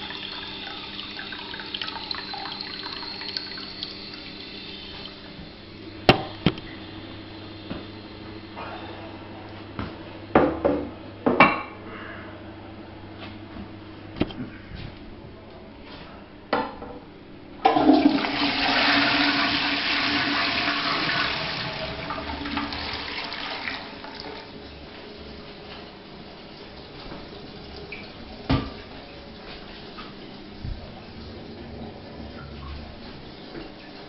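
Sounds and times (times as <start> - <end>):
toilet flushing: 0.0 - 7.8, 17.6 - 34.0
water running: 0.0 - 8.3, 17.6 - 34.0.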